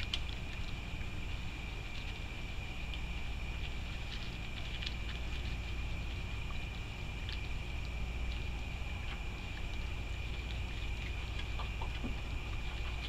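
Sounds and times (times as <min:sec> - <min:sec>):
seeds clicking and chewed: 0:00.0 - 0:13.0
steady low hum: 0:00.0 - 0:13.0.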